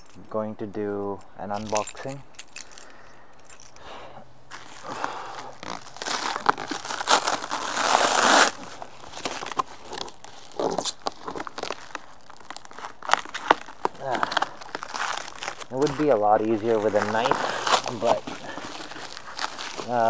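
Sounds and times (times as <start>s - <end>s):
cardboard and tape tearing: 4.5s - 20.0s
cardboard crinkles and crackles: 4.5s - 20.0s.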